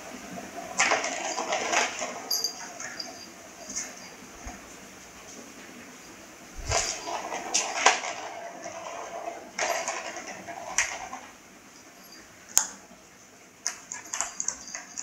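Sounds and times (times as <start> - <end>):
plastic ball rattling around track: 0.8 - 3.1, 6.6 - 11.3.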